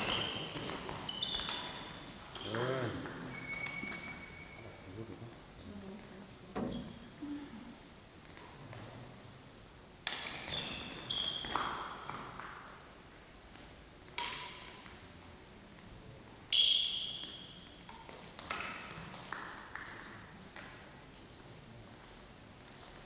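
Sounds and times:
brief ringing tone: 3.3 - 4.9
racket hitting shuttlecock: 14.2 - 14.8.

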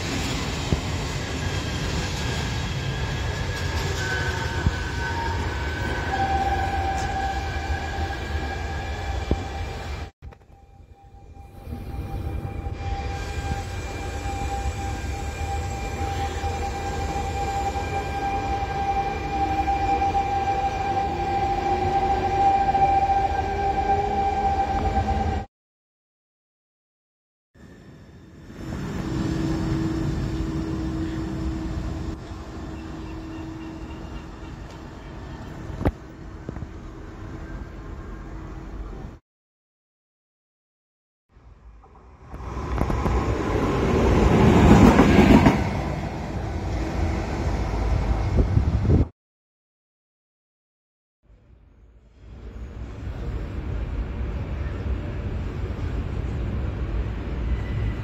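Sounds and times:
train wheels rumbling on rail: 0.0 - 10.4, 41.7 - 49.1
electric locomotive rumbling: 0.0 - 25.5, 27.6 - 39.2, 41.4 - 49.1, 51.3 - 58.0.

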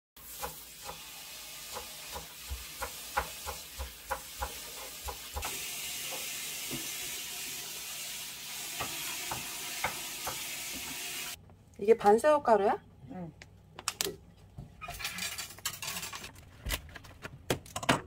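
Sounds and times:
knife chopping on wooden board: 1.7 - 5.6.

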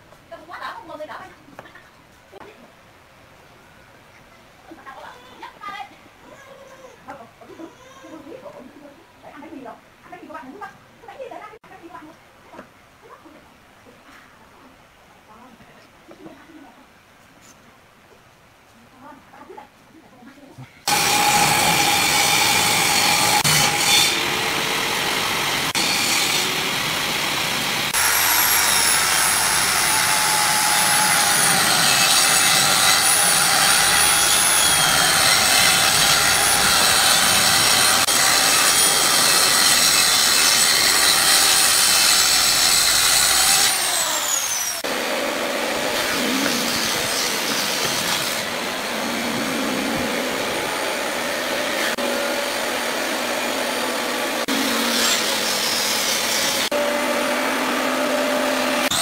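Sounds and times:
circular saw cutting wood: 20.9 - 59.0
steady machine noise: 20.9 - 59.0
motor winding up: 27.9 - 44.8.

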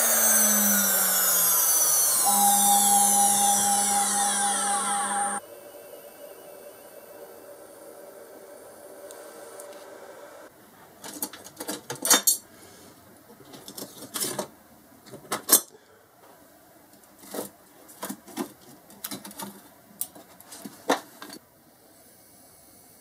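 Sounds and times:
metal clamps clinking and clattering: 11.0 - 12.4.

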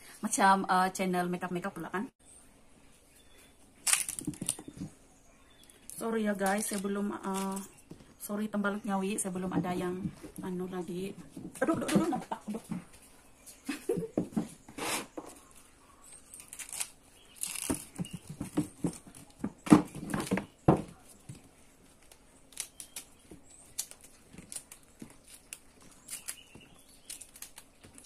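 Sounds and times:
stalk fibres tearing and crackling: 3.8 - 4.6, 5.7 - 7.8, 16.4 - 18.0, 21.8 - 28.0.

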